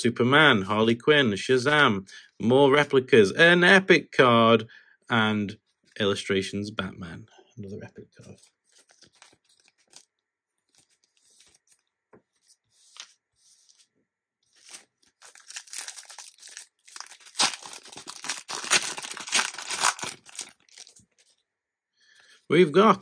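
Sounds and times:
wrapper tearing and crinkling: 14.5s - 21.2s.

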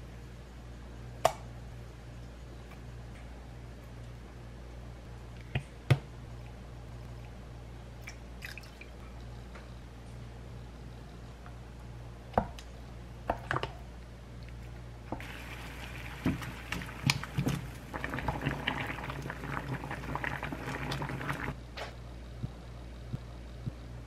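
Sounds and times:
knocks and splashes in pan: 15.2s - 18.8s
water bubbling at a boil: 15.2s - 21.6s.

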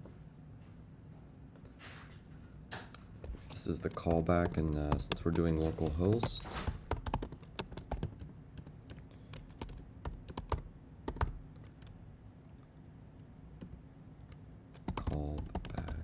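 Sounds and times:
keyboard typing clicks: 3.2s - 12.0s, 13.6s - 16.0s.

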